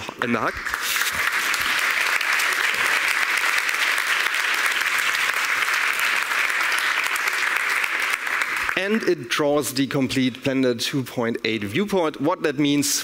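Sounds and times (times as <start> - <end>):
large audience applauding: 0.4 - 9.3.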